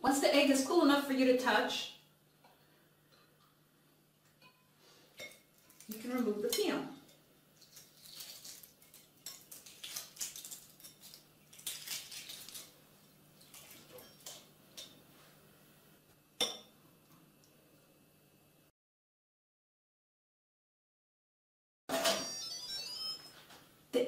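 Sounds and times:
egg shell crackling: 0:07.6 - 0:14.4
clink on ceramic plate: 0:16.4 - 0:16.7.

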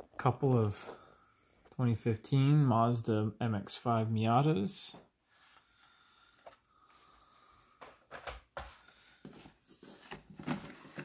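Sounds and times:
cardboard rustling: 0:07.9 - 0:11.0.

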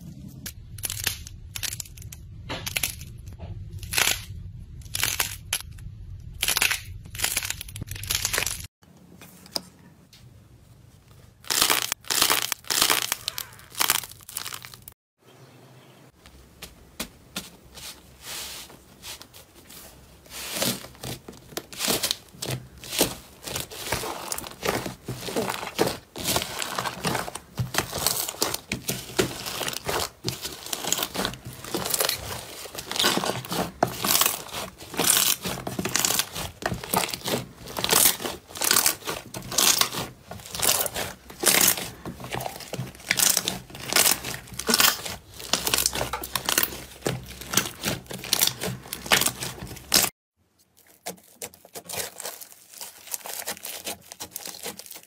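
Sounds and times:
slime crackling and squishing: 0:00.4 - 0:08.7, 0:11.1 - 0:15.0, 0:17.6 - 0:55.0
paper crinkling: 0:17.4 - 0:55.0.

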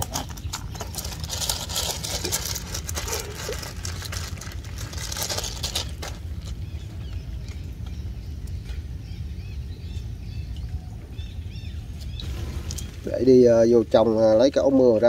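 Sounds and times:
plastic bag crinkling: 0:00.0 - 0:06.9
low rumble: 0:00.0 - 0:14.2.

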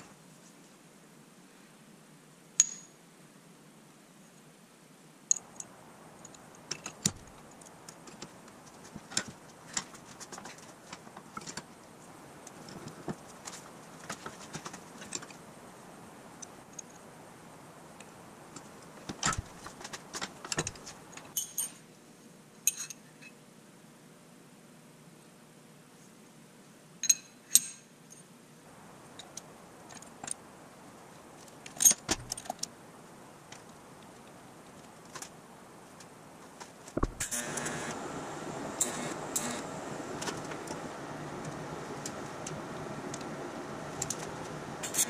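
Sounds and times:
metal parts clinking: 0:20.5 - 0:21.8.

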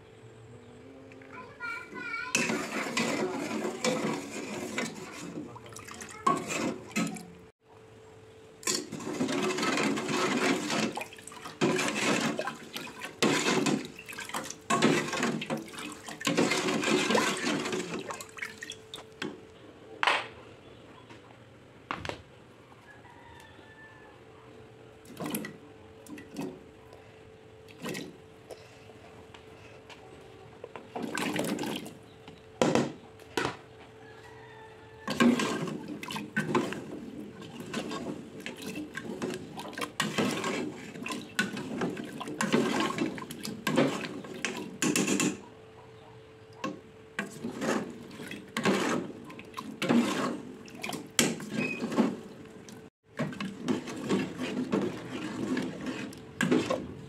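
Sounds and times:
ladle scraping pot: 0:01.8 - 0:07.5, 0:08.6 - 0:19.1, 0:35.0 - 0:45.5, 0:46.6 - 0:57.0
chunks splashing into pot: 0:02.3 - 0:07.5, 0:08.6 - 0:19.4, 0:30.9 - 0:32.0, 0:35.1 - 0:45.4, 0:46.6 - 0:57.0
metal ladle stirring liquid: 0:02.3 - 0:07.5, 0:08.6 - 0:19.2, 0:35.1 - 0:45.4, 0:46.6 - 0:57.0.

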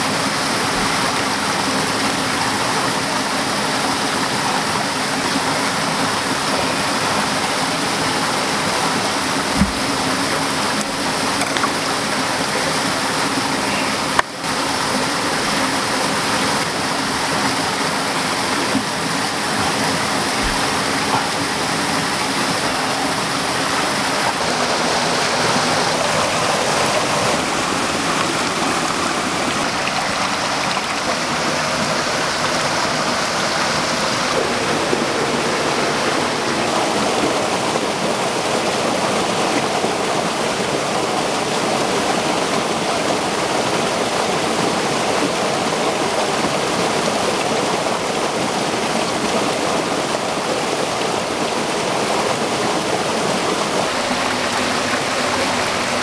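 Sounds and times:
waterfall rushing over rocks: 0:00.0 - 0:56.0.

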